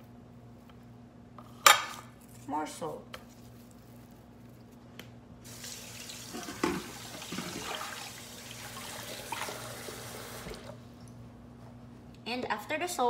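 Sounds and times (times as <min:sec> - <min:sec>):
water running into a sink: 0:05.4 - 0:10.8.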